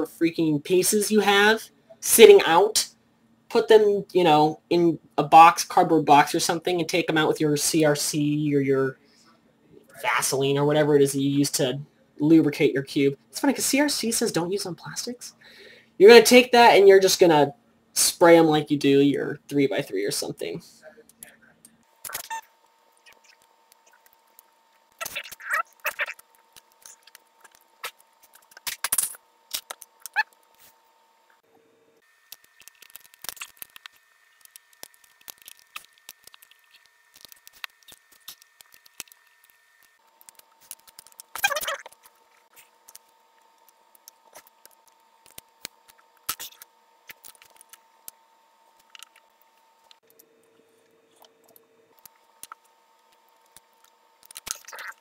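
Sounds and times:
plastic puzzle pieces clicking: 37.2 - 39.2.

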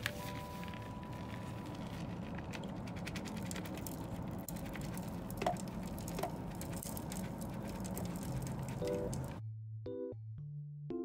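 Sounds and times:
soil pouring into pot: 1.2 - 9.4.

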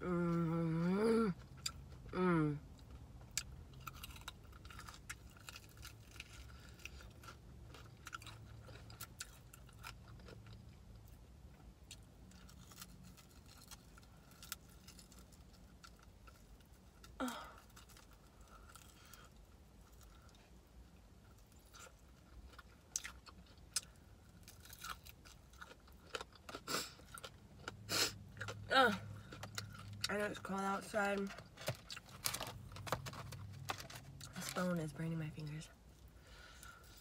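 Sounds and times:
chewing chicken wing: 21.6 - 27.8.

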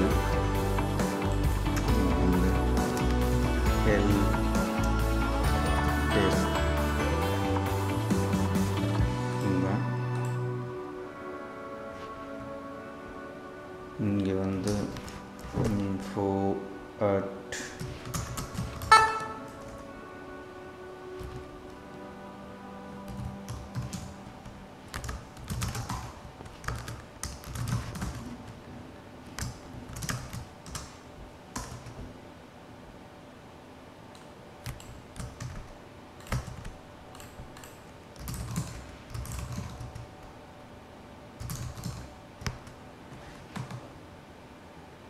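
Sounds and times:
keyboard typing: 17.6 - 19.8, 23.1 - 28.6, 29.4 - 32.0, 34.6 - 40.3, 41.4 - 42.8, 43.5 - 43.9.

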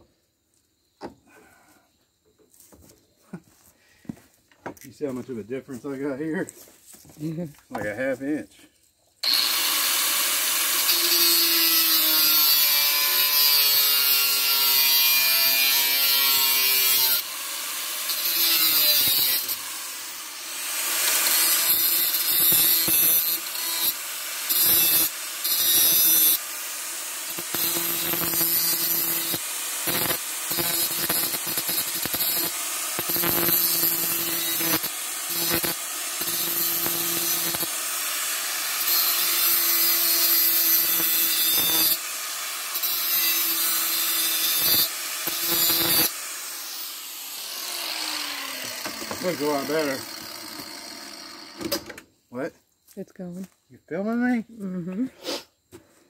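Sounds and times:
grinding disc hissing on metal: 9.2 - 42.1
angle grinder motor whine: 9.2 - 51.9.

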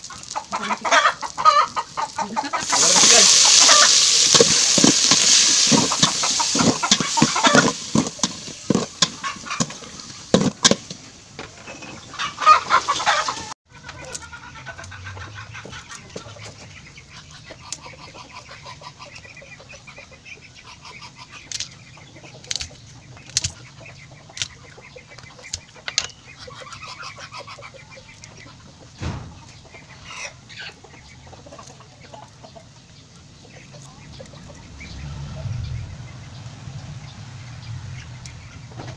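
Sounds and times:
pork sizzling in a pot: 0.0 - 11.1
chickens clucking: 0.0 - 38.9.

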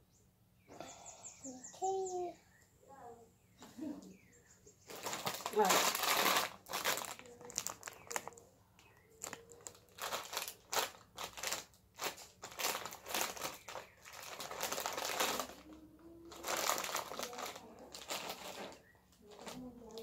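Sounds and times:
foil chip bag crinkling: 4.9 - 20.0.

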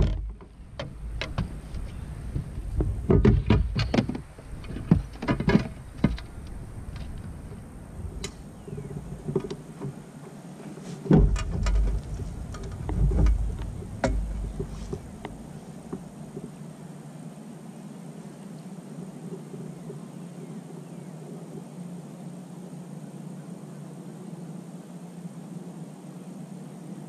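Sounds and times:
fishing gear clicks and knocks: 0.0 - 7.6, 8.2 - 16.1
low rumble: 11.2 - 16.4.

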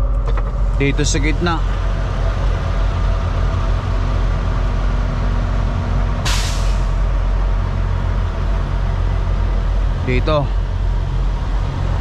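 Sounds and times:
diesel engine idling: 0.0 - 12.0
air brakes hissing: 6.2 - 7.1.

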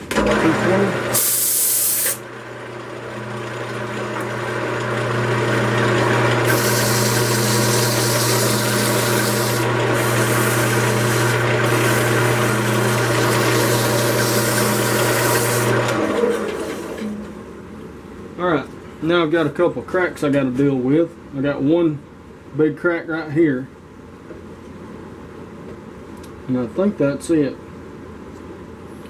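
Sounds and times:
lathe motor hum: 0.1 - 1.2, 2.3 - 17.4.

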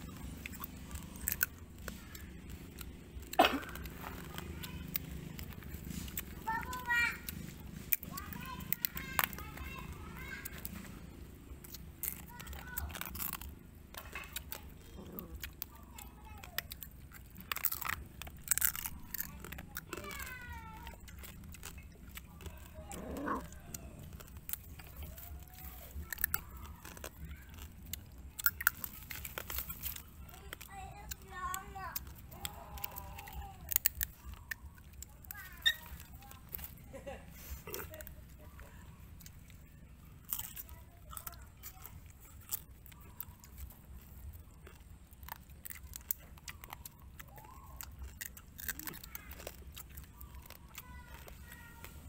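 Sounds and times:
chewing crunchy crab shells: 0.0 - 52.0.

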